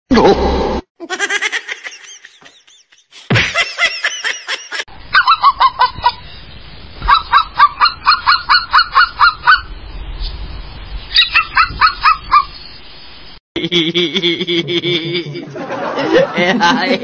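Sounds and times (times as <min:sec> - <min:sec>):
toy robot dog electronic yaps: 0:07.0 - 0:09.7, 0:11.1 - 0:12.5.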